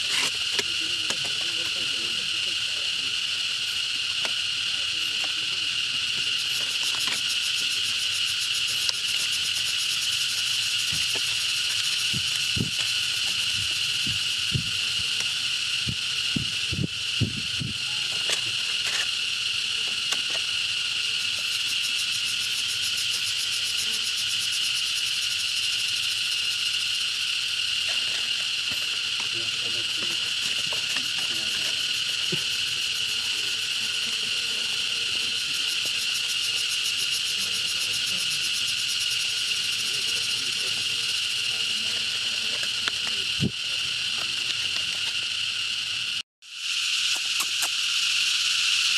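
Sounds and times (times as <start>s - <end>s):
insects buzzing: 0.0s - 48.9s.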